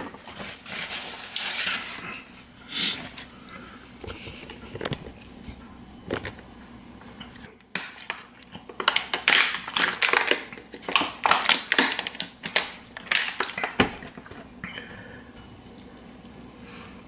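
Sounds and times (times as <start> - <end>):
plastic bottle crinkling: 7.8 - 14.5.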